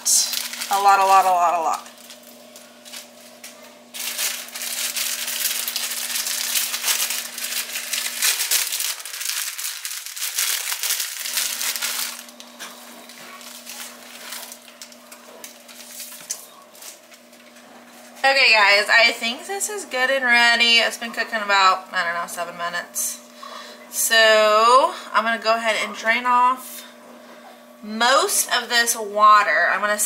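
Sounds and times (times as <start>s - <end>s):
plastic packets crinkling: 0.0s - 17.6s.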